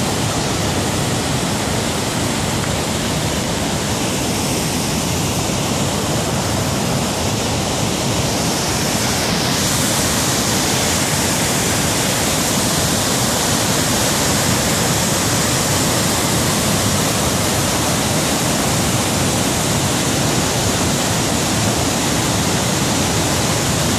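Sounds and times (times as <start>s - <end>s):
white water rushing over rocks: 0.0s - 23.9s.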